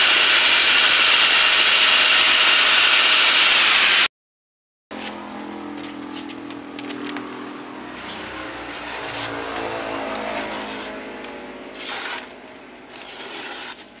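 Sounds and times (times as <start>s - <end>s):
steady motor hum: 4.9s - 14.0s
cleaver slicing paper: 8.0s - 9.4s, 10.0s - 11.0s, 11.7s - 14.0s.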